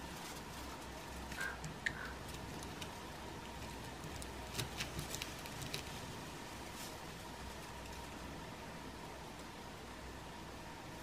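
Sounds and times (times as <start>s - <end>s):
faint steady hiss: 0.0s - 11.0s.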